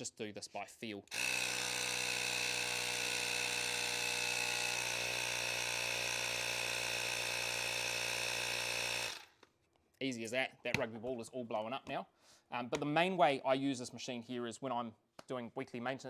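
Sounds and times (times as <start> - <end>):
handheld inflator running: 1.1 - 9.4.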